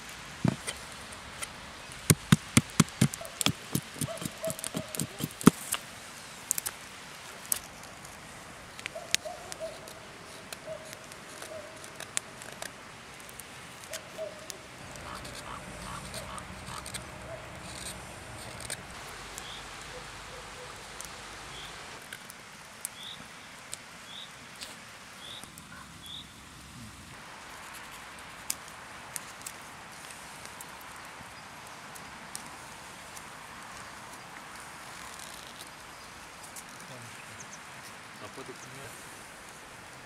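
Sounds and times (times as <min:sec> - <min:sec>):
knife carving wood: 0:02.0 - 0:05.8, 0:14.8 - 0:19.0.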